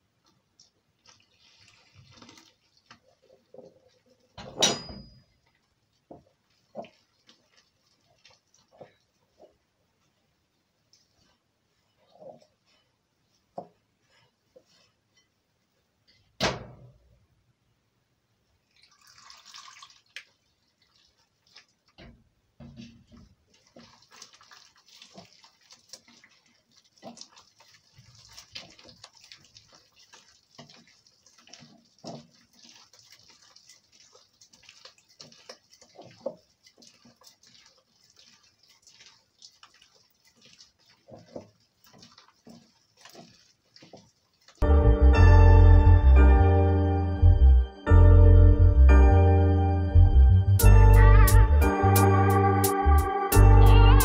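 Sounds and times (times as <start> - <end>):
dough squishing: 0.0 - 4.4, 5.4 - 16.4, 18.7 - 44.7
water pouring into flour: 0.0 - 4.4, 18.6 - 22.0, 23.1 - 44.6.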